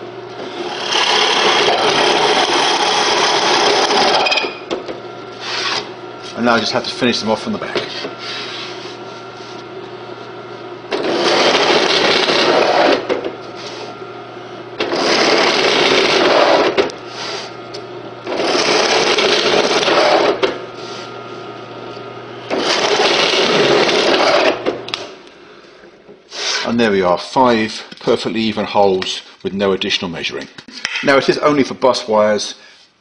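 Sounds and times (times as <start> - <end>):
drill press motor running: 0.0 - 25.2
bit cutting through plywood: 0.4 - 4.3, 10.9 - 13.1, 14.8 - 16.8, 18.3 - 20.4, 22.5 - 24.6.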